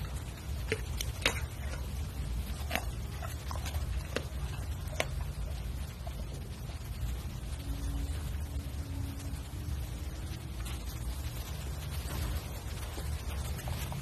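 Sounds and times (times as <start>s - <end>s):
dog eating with wet smacks: 0.0s - 7.5s.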